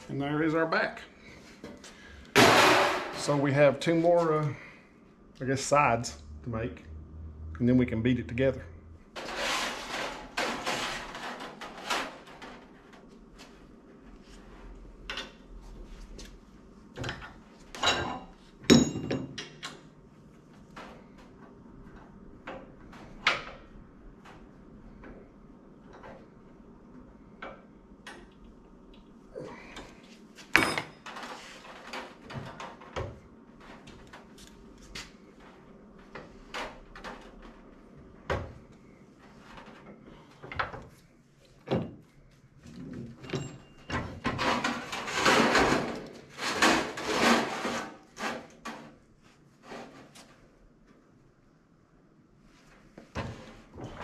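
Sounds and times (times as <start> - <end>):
sheet metal scraping: 8.4 - 12.5, 44.3 - 48.8.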